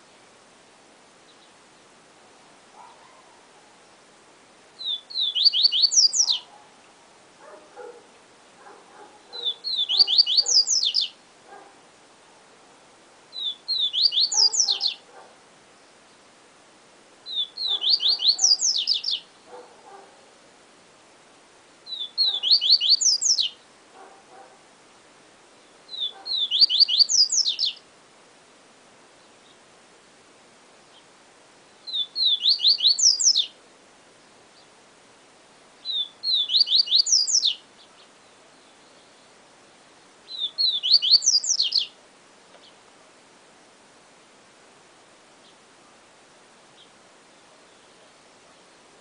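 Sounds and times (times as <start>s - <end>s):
bird singing high sweeping notes: 4.8s - 6.4s, 9.4s - 11.1s, 13.3s - 15.0s, 35.8s - 37.6s, 40.3s - 41.9s.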